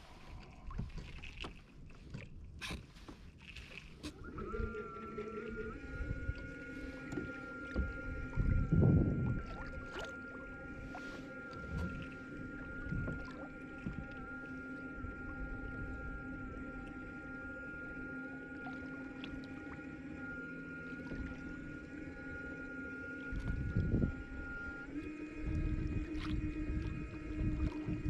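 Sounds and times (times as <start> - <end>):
wind rumble on microphone: 0.0 - 16.8, 23.3 - 28.0
synth pad chords: 4.2 - 28.0.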